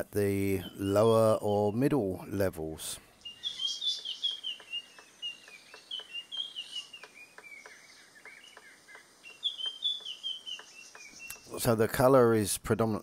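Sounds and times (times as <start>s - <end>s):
high falling bird chirps: 3.0s - 11.7s
bird pecking hollow bamboo: 3.8s - 11.6s.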